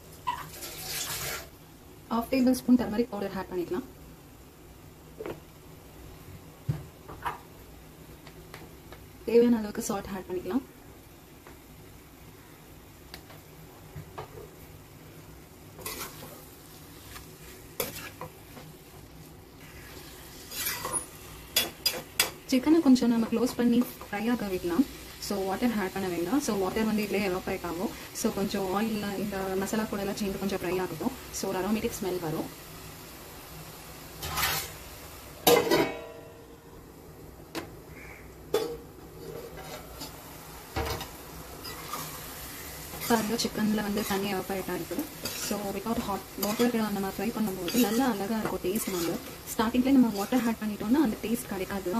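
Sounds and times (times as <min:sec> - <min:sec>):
faint oil sizzle: 0:00.0 - 0:51.9
spoon scraping and clinking pan: 0:46.4 - 0:46.8, 0:47.5 - 0:49.3.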